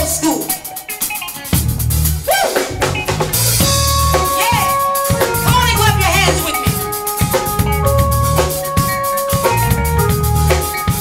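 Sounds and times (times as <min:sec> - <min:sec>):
drum kit: 0:00.0 - 0:11.0
repeating bass line: 0:01.6 - 0:11.0
sustained keyboard chords: 0:02.7 - 0:11.0.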